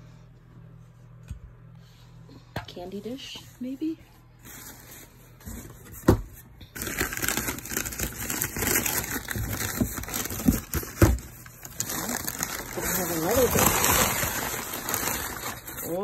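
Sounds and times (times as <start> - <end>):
newspaper crinkling: 6.8 - 16.0.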